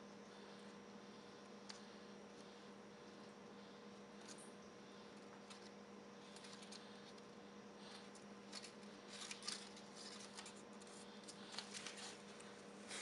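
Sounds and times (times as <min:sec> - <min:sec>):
paper notes crackling: 0:03.2 - 0:13.0.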